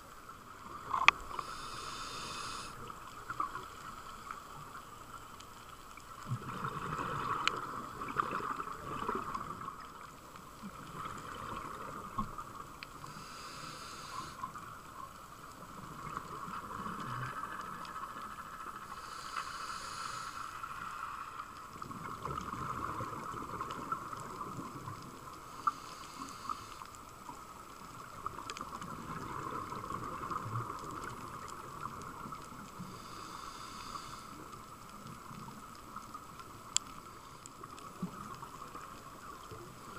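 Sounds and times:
faint clicks: 0.3s - 6.4s, 7.2s - 39.9s
regulator hissing inhalations: 1.3s - 2.9s, 13.0s - 14.5s, 18.9s - 20.9s, 25.5s - 26.9s, 32.9s - 34.4s
exhaled bubbles rumbling: 6.2s - 10.0s, 21.8s - 25.3s, 27.9s - 32.8s.

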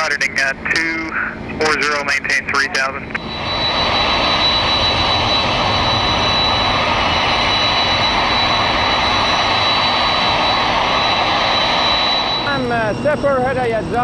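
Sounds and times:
high jet engine whine: 0.0s - 14.0s
jet engine rushing: 0.0s - 14.0s.

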